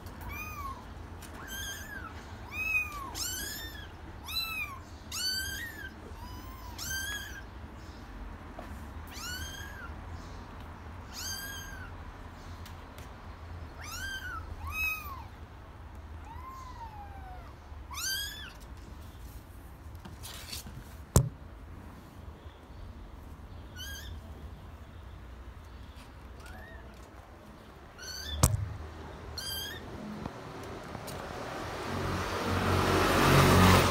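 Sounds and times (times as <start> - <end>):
kittens mewing: 0.2 - 7.5, 9.1 - 10.0, 11.0 - 12.0, 13.7 - 15.4, 16.1 - 18.6, 23.7 - 24.2, 27.8 - 30.2
sharp click: 28.4 - 28.8.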